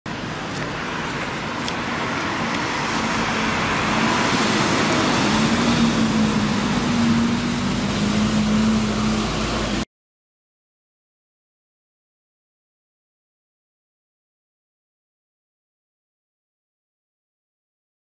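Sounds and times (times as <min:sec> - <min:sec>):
tyre hiss on wet road: 0:00.1 - 0:09.8
bus engine hum: 0:00.1 - 0:09.9.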